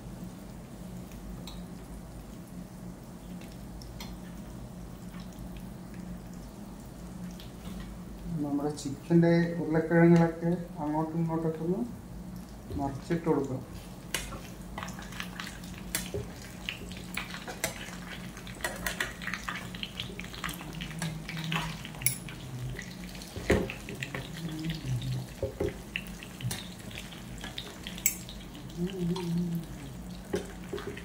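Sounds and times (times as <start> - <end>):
faint frying sizzle: 0.0 - 31.0.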